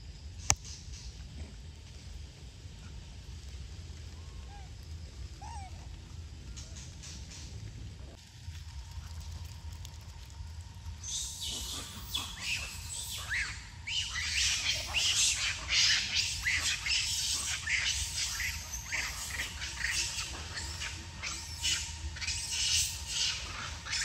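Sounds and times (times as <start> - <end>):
steady low rumble: 0.0 - 24.0
monkeys squealing and chirping: 11.0 - 24.0.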